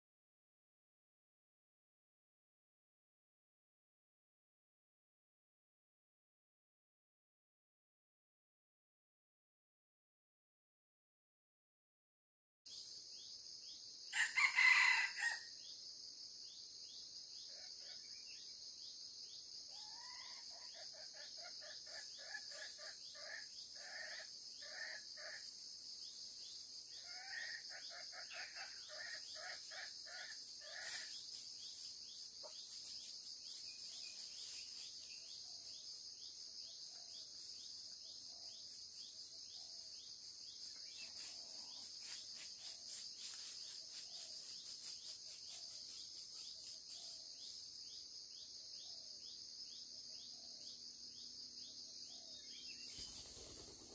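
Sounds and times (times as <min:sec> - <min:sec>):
junglefowl crowing: 0:14.1 - 0:15.5, 0:19.7 - 0:25.4, 0:27.0 - 0:31.1.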